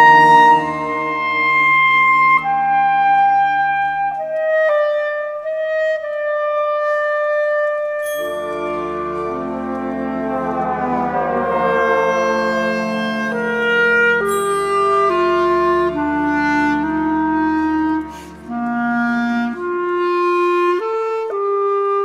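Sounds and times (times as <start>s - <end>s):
clarinet holding long notes: 0.0s - 22.0s
orchestra sustained chord: 8.0s - 19.6s.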